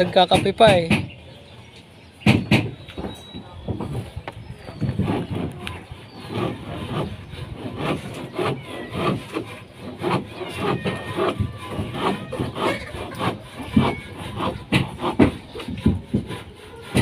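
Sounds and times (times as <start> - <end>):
hand saw cutting wood: 0.0 - 1.1, 4.7 - 17.0
faint birds chirping: 0.0 - 17.0.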